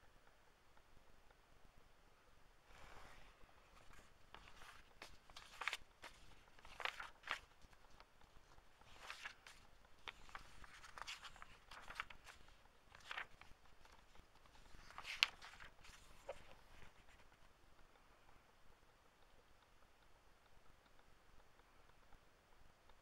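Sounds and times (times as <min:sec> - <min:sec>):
book pages rustling: 0:02.7 - 0:17.6.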